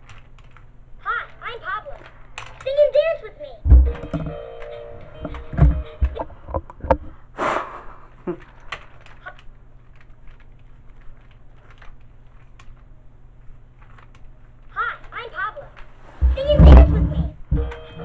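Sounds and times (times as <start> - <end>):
toy clicks and knocks: 2.0 - 2.8, 3.7 - 7.0, 17.5 - 18.0
handling noises: 3.6 - 7.2, 15.7 - 18.0
short breathy rush: 7.1 - 8.2.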